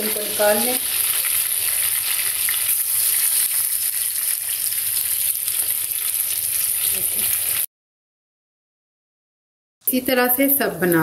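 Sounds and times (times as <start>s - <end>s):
meat frying in fat: 0.0s - 7.7s.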